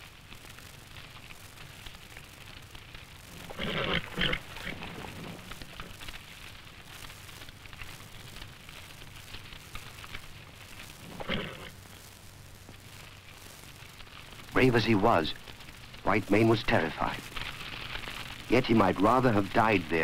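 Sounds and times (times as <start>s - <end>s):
burning reeds crackling: 0.0s - 20.0s
horse crying: 3.5s - 5.5s, 11.1s - 11.8s.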